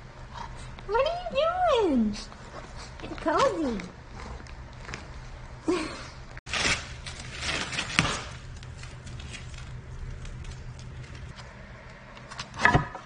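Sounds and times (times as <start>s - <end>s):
low steady hum: 0.0s - 13.0s
plastic packaging crinkling: 6.5s - 11.4s.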